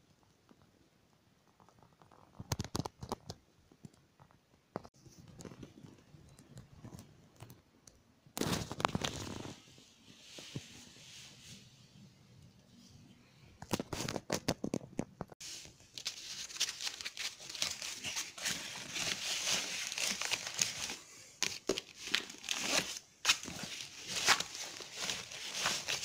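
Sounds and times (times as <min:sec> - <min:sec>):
backpack rustling and crinkling: 0:15.4 - 0:26.0
papers sliding: 0:15.5 - 0:26.0.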